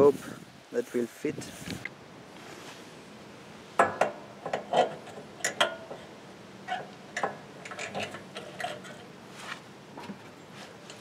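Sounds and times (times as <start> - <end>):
metal pipe fittings clicking: 3.8 - 9.1.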